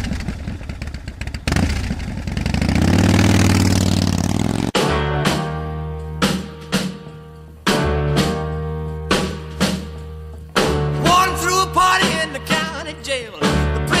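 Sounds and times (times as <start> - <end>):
rock and roll music: 4.7 - 14.0
man singing: 11.0 - 14.0.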